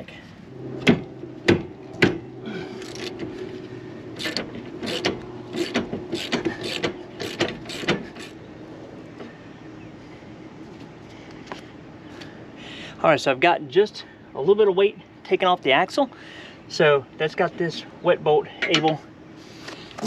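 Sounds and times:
socket ratchet clicking: 0:04.2 - 0:08.4.

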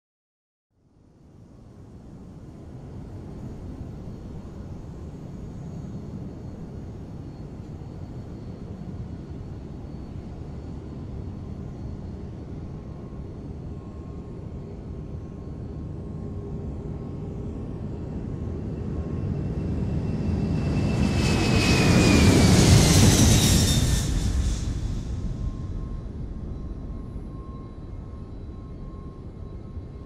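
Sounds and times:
faint engine whine: 0:00.8 - 0:30.0
aircraft roar: 0:16.0 - 0:30.0.

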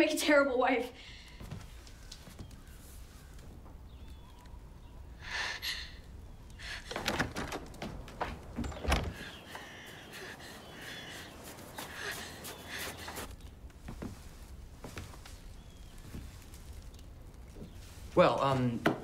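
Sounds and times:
short rustle: 0:06.6 - 0:18.7
wooden door knocks and thuds: 0:06.8 - 0:09.3.

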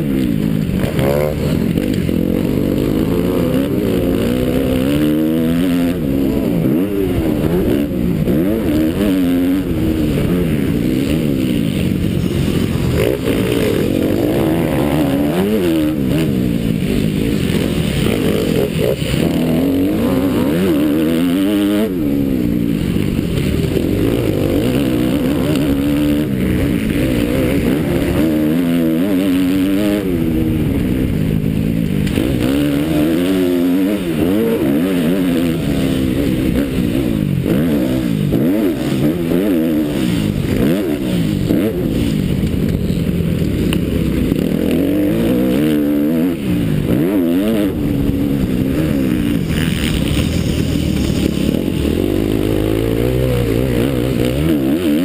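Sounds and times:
motocross bike engine revving: 0:00.0 - 0:55.0.

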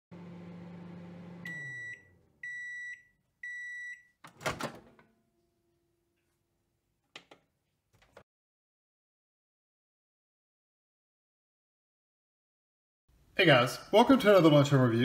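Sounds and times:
microwave oven humming: 0:00.1 - 0:03.6
high microwave beeps: 0:01.4 - 0:04.2.

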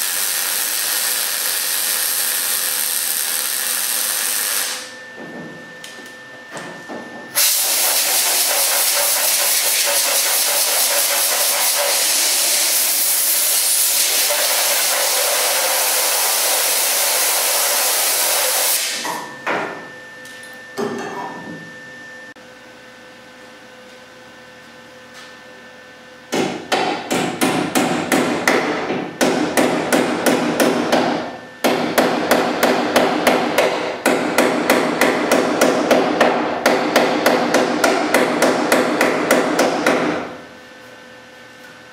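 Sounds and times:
welder arc crackling: 0:00.0 - 0:04.9.

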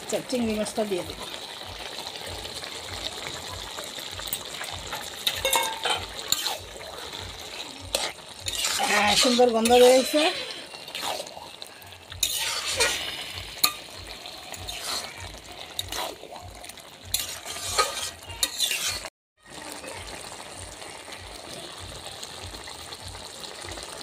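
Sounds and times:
curry sizzling: 0:00.0 - 0:24.0
spatula scraping metal pan: 0:05.3 - 0:11.6, 0:12.2 - 0:13.8, 0:14.5 - 0:16.2, 0:17.1 - 0:19.1.

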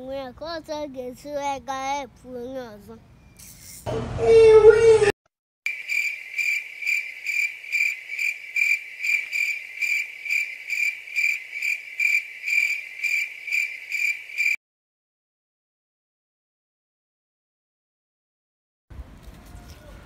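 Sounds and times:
cricket chirping: 0:05.7 - 0:14.6.

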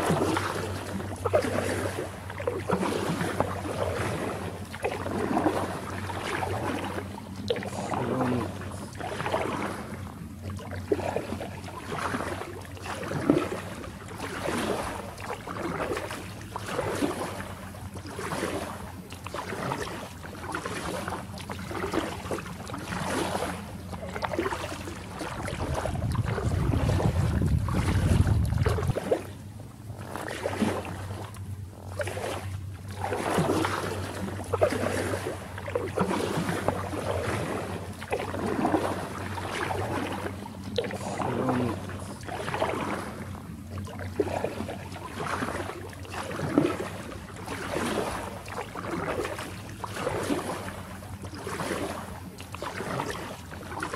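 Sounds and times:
paddle strokes splashing water: 0:00.0 - 0:53.9
wind rumble on microphone: 0:25.1 - 0:29.3.

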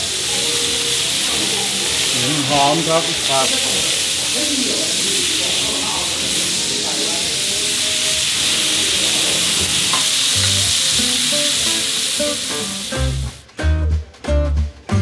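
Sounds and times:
food sizzling in a pan: 0:00.0 - 0:13.4.

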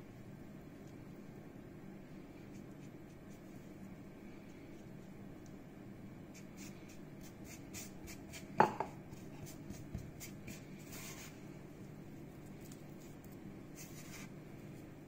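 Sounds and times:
hands kneading dough: 0:02.2 - 0:15.0
sharp knock on countertop: 0:08.6 - 0:09.0.

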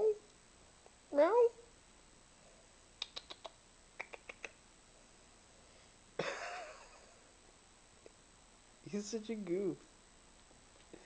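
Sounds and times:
faint sharp clicks: 0:03.0 - 0:04.6.

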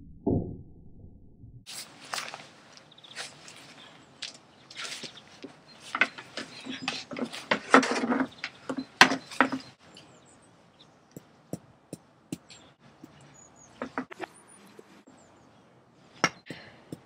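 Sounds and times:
birds chirping: 0:01.8 - 0:17.0
plastic chair scraping on stone: 0:05.8 - 0:09.8
small hammer tapping: 0:11.1 - 0:13.2, 0:16.2 - 0:17.0.

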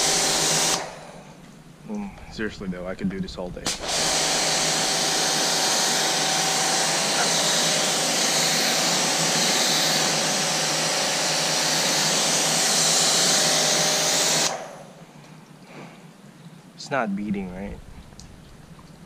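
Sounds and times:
pressure washer water jet hissing: 0:00.0 - 0:01.4, 0:03.7 - 0:15.0
faint motor hum: 0:00.0 - 0:19.0.

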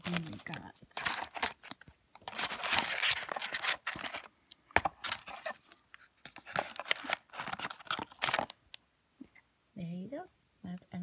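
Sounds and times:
packaging rustling and crinkling: 0:00.0 - 0:08.6.

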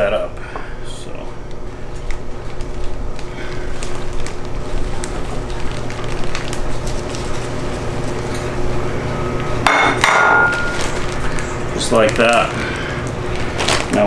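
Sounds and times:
steady low hum: 0:00.0 - 0:14.0
plastic bag rustling: 0:01.6 - 0:09.5, 0:10.4 - 0:14.0
breading poured into plastic bag: 0:02.0 - 0:08.5, 0:10.5 - 0:14.0.

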